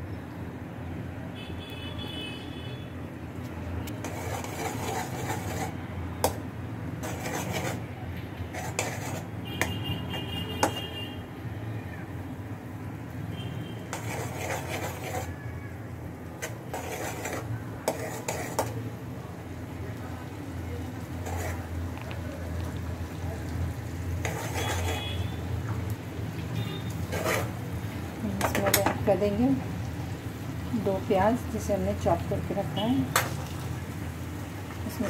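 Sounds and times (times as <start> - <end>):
garlic frying in oil: 1.4 - 35.0.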